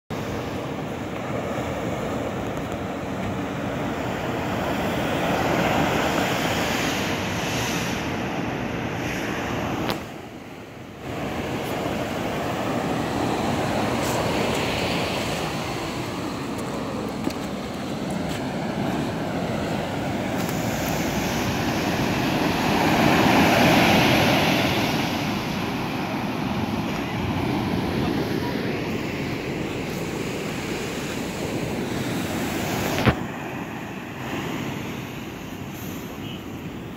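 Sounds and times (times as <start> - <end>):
surf breaking on beach: 0.1 - 10.3, 11.0 - 36.8.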